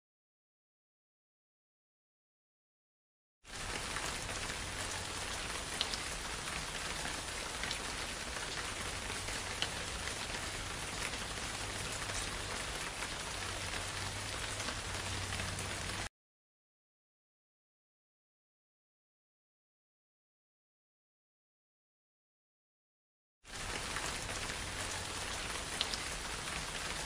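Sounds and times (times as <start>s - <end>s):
rain hissing: 3.5s - 16.1s, 23.5s - 27.0s
rain drop ticks: 3.7s - 16.1s, 23.6s - 27.0s.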